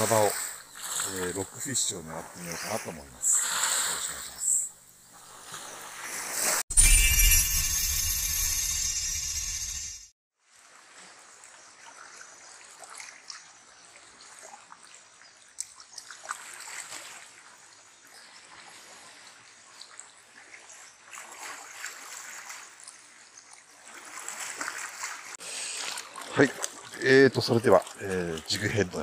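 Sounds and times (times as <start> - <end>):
small water splashes: 0.0 - 1.6, 10.5 - 29.0
small waves lapping among rocks: 10.5 - 29.0.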